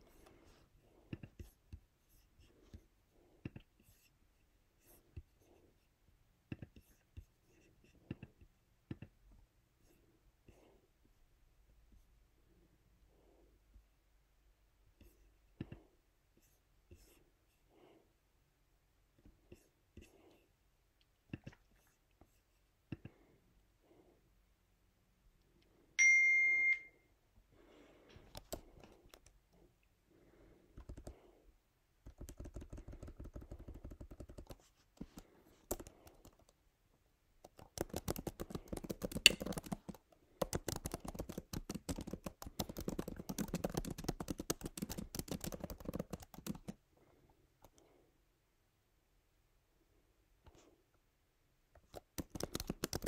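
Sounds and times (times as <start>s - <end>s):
short electronic beep: 26.0s - 27.0s
typing on computer keyboard: 30.8s - 31.2s, 32.0s - 36.6s, 37.4s - 46.8s, 51.9s - 53.0s.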